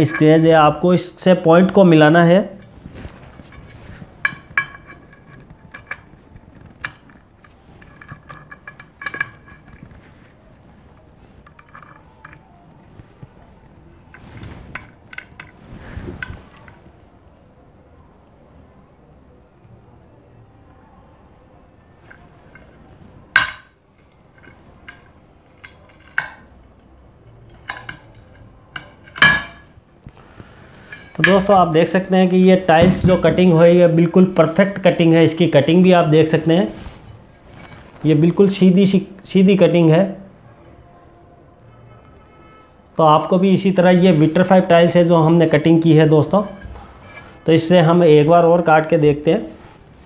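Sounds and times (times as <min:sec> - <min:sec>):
ceramic tile cracking: 0:02.6 - 0:10.1, 0:23.4 - 0:26.6.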